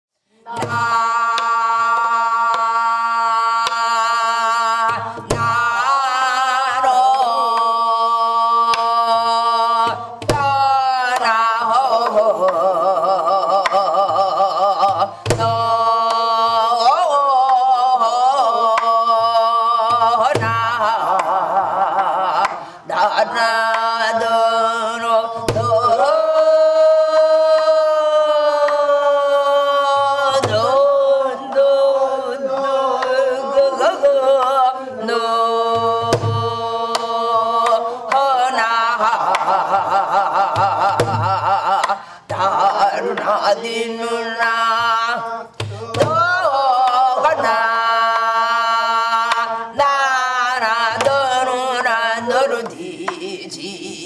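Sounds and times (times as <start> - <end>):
wordless vocal with vibrato: 0.2 - 54.0
slow deep drum beat: 40.5 - 41.8.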